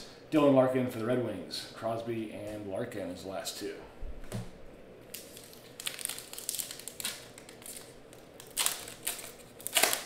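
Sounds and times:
foil wrapper crinkling: 0:05.1 - 0:10.0
foil wrapper tearing: 0:05.1 - 0:10.0.

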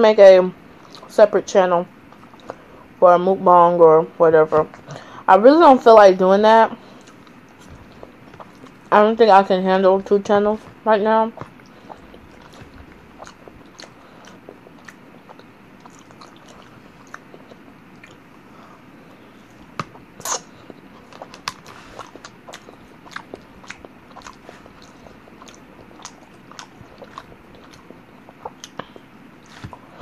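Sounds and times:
person chewing: 0:06.8 - 0:08.9, 0:10.6 - 0:30.0.

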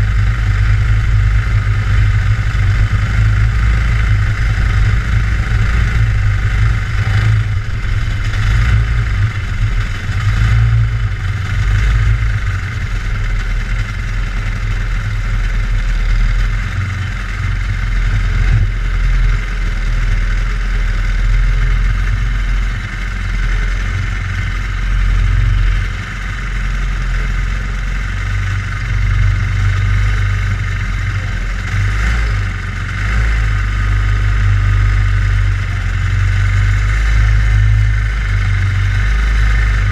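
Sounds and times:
racing kart engine idling: 0:00.0 - 0:39.9.

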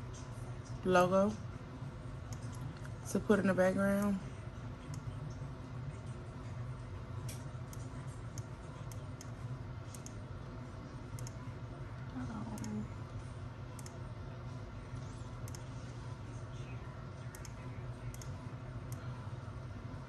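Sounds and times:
steady low hum: 0:00.0 - 0:20.0
computer mouse clicking: 0:07.3 - 0:10.2, 0:11.1 - 0:11.4, 0:13.8 - 0:14.0, 0:15.4 - 0:15.7, 0:17.3 - 0:19.1.

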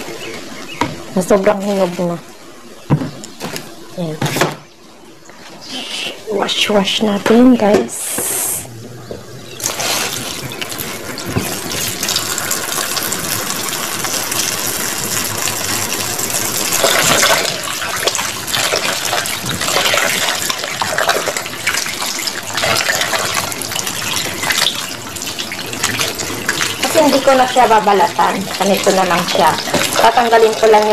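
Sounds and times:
tap running into tub: 0:07.0 - 0:08.4, 0:09.0 - 0:30.9.

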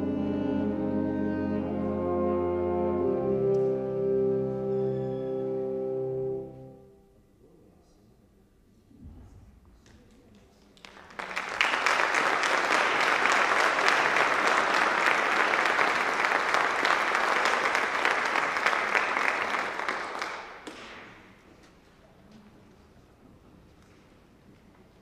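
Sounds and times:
audience applauding: 0:10.6 - 0:21.2.

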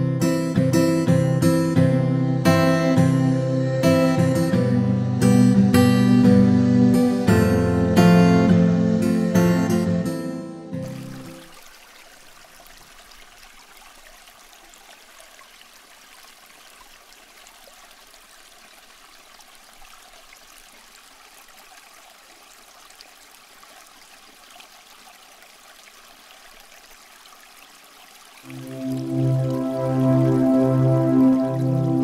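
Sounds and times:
water ripples lapping: 0:10.8 - 0:32.0.

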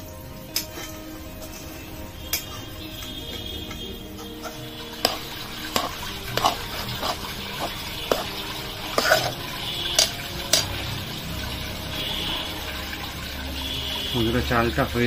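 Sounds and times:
spoon stirring thick mixture: 0:00.6 - 0:12.1
spoon clinking against metal pan: 0:02.3 - 0:10.8.

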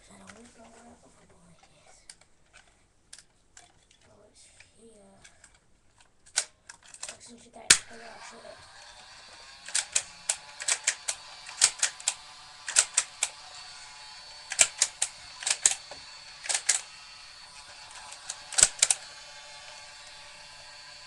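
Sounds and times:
plastic toy blaster clicks: 0:06.3 - 0:21.0.

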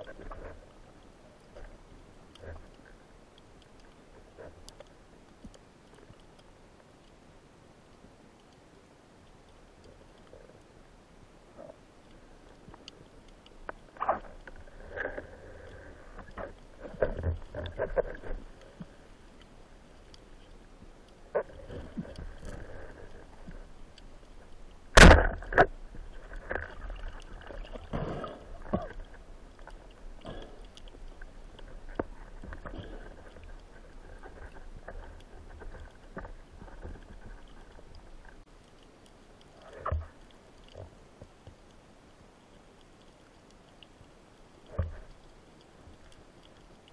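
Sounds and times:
underwater water swishing: 0:00.0 - 0:46.9
speargun firing crack: 0:25.0 - 0:25.4.

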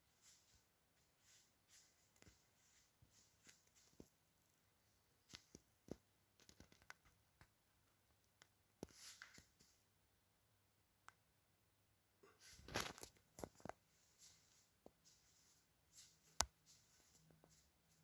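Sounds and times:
soft rustle: 0:00.1 - 0:04.2, 0:12.2 - 0:18.0.

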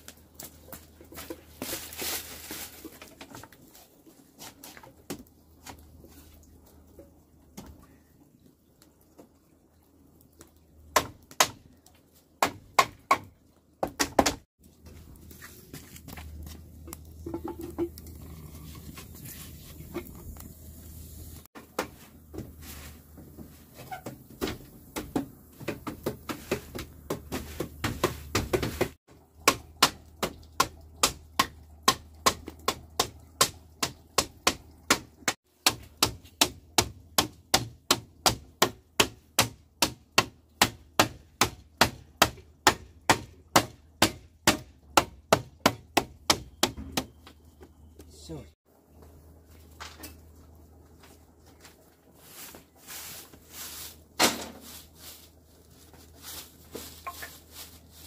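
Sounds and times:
handling noise: 0:49.7 - 0:58.0.

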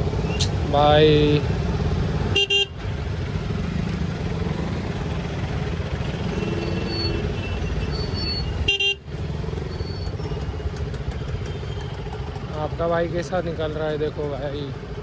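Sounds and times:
motorcycle engine rumble: 0:00.0 - 0:15.0
road noise: 0:00.0 - 0:15.0
car horns honking: 0:02.3 - 0:02.8, 0:06.1 - 0:09.1.

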